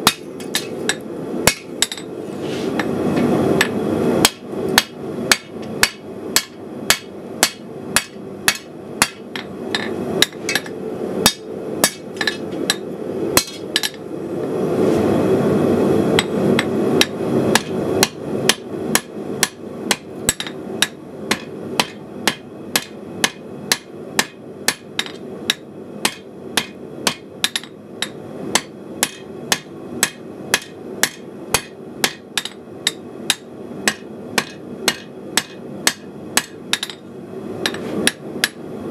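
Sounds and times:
hammer clanging on anvil: 20.3 - 37.0.

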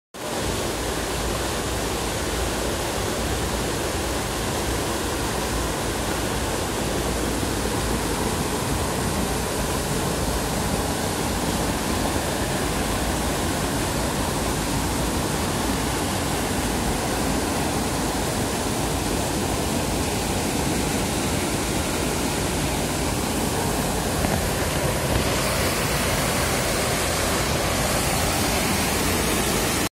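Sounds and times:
river rushing: 0.2 - 29.9.

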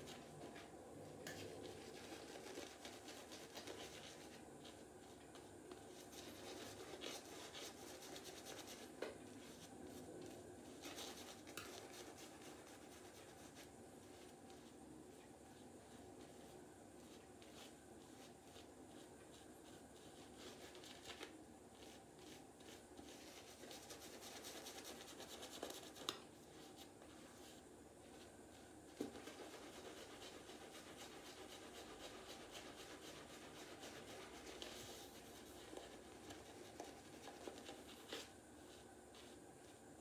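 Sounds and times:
shaving brush scrubbing stubble: 29.1 - 38.2.

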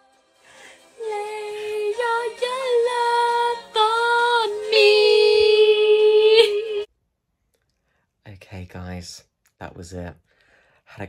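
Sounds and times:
woman singing sustained notes: 0.5 - 6.9.

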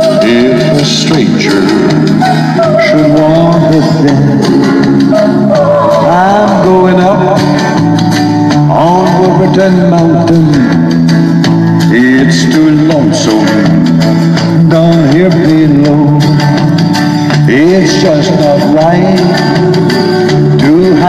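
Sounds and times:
man singing into microphone: 0.0 - 10.9, 11.8 - 21.0
instrumental accompaniment: 0.0 - 21.0.

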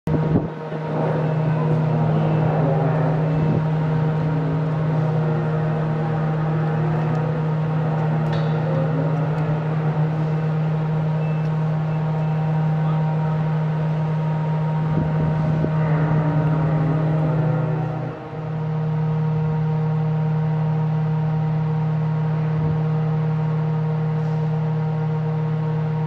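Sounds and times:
engine drone: 0.1 - 26.0.

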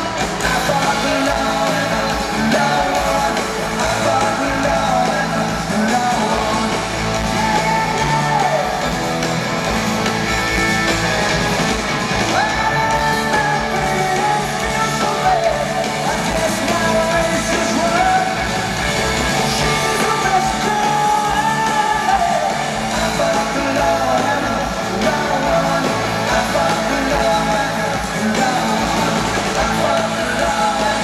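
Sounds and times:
person singing: 0.0 - 10.6, 12.1 - 31.0
drums: 0.0 - 31.0
electric guitars: 0.0 - 31.0.

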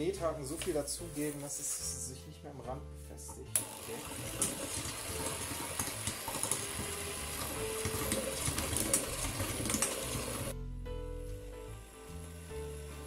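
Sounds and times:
background music: 0.0 - 13.0
electric hand mixer running: 3.6 - 10.6, 11.6 - 13.0.

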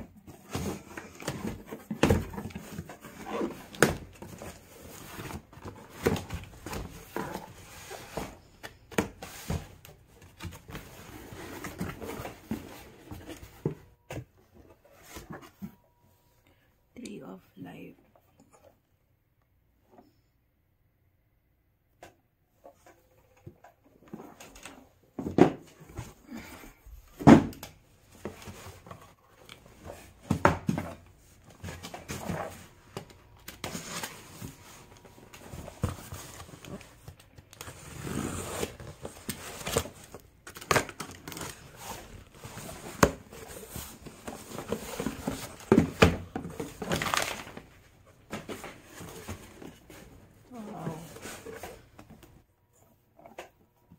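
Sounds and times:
cardboard rustling and scraping: 0.1 - 15.8, 28.1 - 52.4
boxes thumping on wooden floor: 0.2 - 10.7, 27.2 - 28.6, 30.0 - 33.1, 42.8 - 47.7.

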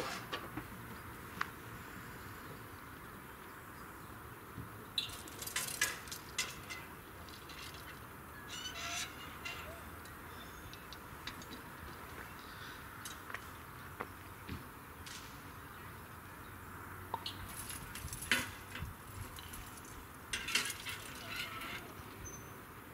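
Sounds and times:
small birds chirping: 8.5 - 14.6.

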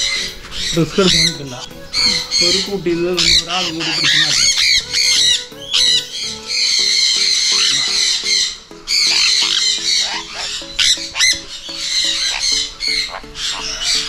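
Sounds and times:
parrots screeching: 0.0 - 14.0.

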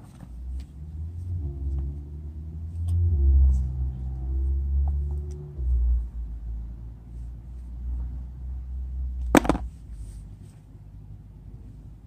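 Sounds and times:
sharp knock: 9.4 - 9.7.

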